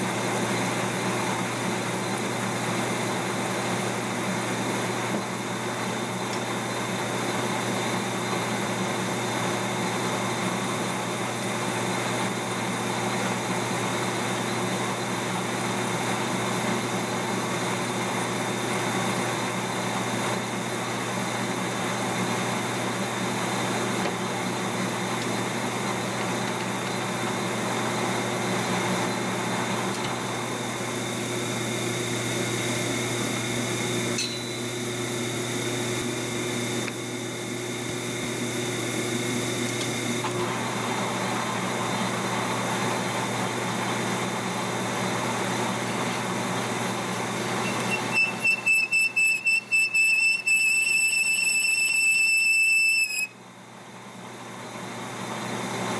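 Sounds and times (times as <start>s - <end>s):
metal lathe running: 0.0s - 53.4s
cutting tool machining metal: 22.4s - 40.7s, 45.8s - 53.3s.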